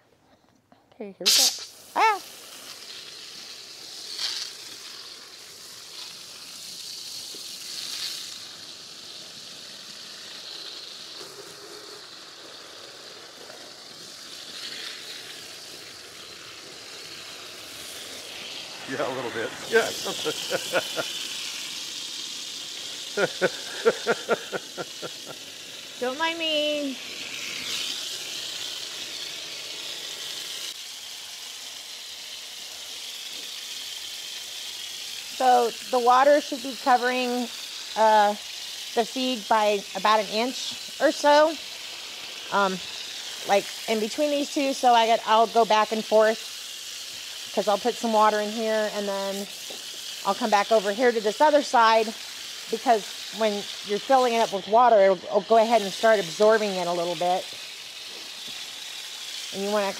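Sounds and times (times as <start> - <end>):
hose spraying water on grain: 1.2 - 59.9.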